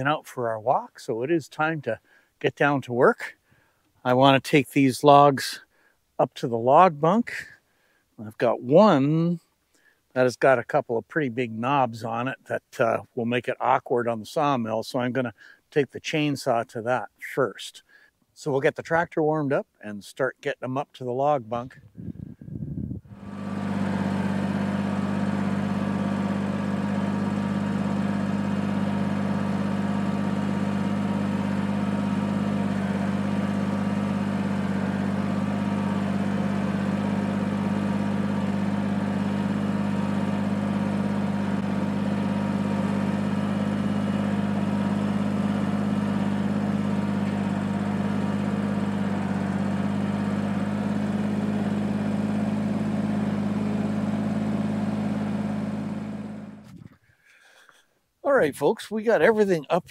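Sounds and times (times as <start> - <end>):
tractor diesel engine idling: 23.1 - 57.8.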